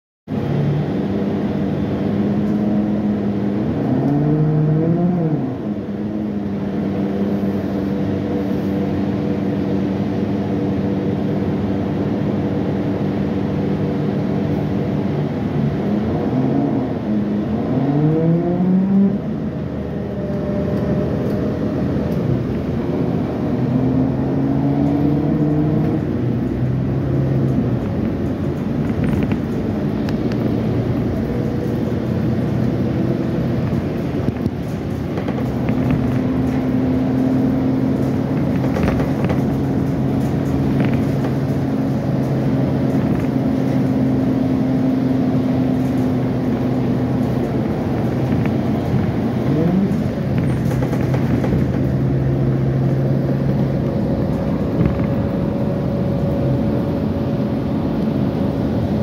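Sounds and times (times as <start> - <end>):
bus engine drone: 0.2 - 59.0.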